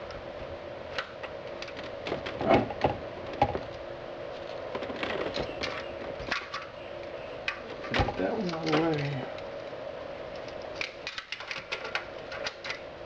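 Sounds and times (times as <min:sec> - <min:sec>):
faint steady hum: 0:00.0 - 0:13.0
knocks and rattles of metal unit: 0:07.4 - 0:09.3, 0:10.3 - 0:12.9.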